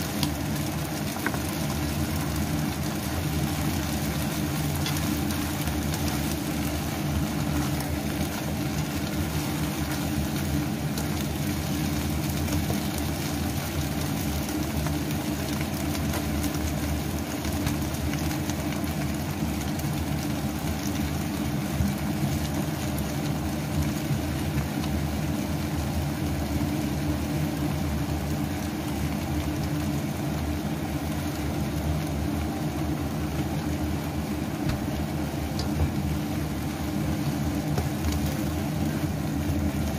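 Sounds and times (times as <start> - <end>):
spatula stirring in a wok: 0.0 - 15.1
cabbage sizzling in a wok: 0.0 - 39.9
kitchen appliance fan hum: 0.0 - 39.9.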